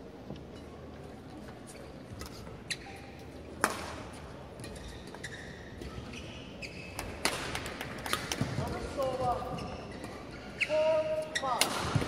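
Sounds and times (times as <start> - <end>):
shoe squeaks on court: 1.7 - 3.3, 4.6 - 12.0.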